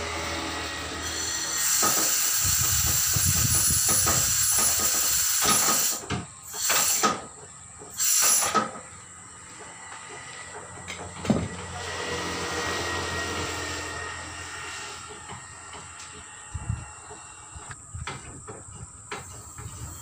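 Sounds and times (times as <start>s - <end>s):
air hissing from tyre machine: 0.0s - 9.0s, 11.3s - 17.7s, 19.2s - 20.0s.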